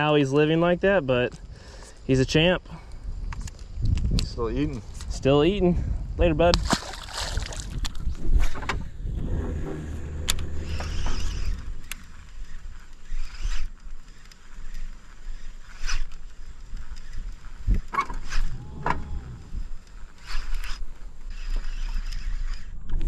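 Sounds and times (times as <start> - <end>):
low rumble: 7.4 - 12.7, 18.4 - 20.1
fishing reel whirring and clicking: 9.7 - 18.6, 19.2 - 22.8.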